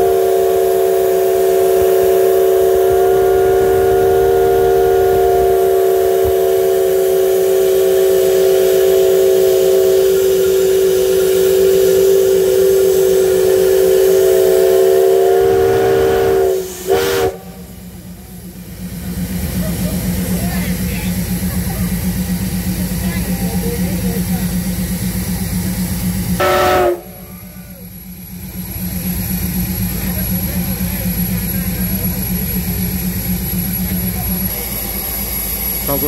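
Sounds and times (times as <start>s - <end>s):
steam locomotive whistle blast: 0.0s - 18.0s, 26.3s - 28.0s.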